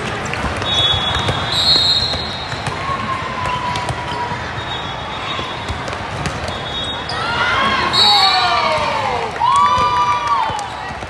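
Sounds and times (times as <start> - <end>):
murmur of crowd and players: 0.0 - 11.0
shoe squeak: 0.6 - 2.6, 4.1 - 7.4.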